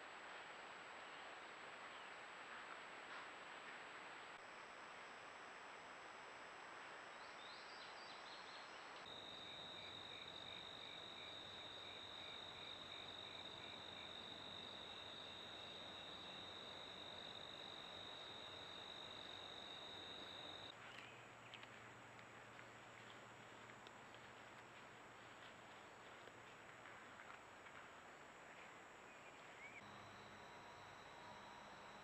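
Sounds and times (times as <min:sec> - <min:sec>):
faint microphone hiss: 0:00.0 - 0:22.1
high-pitched insect trill: 0:09.1 - 0:20.7
pulsing insect call: 0:09.1 - 0:20.7.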